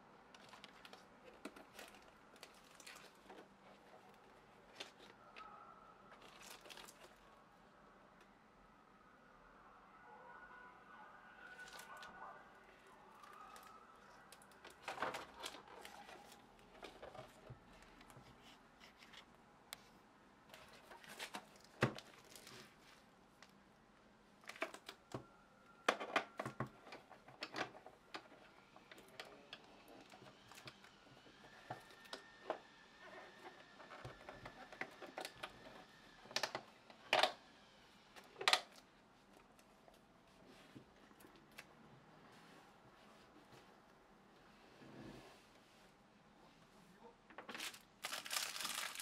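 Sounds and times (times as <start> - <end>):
plastic film rustling: 6.2 - 7.2, 47.5 - 49.0.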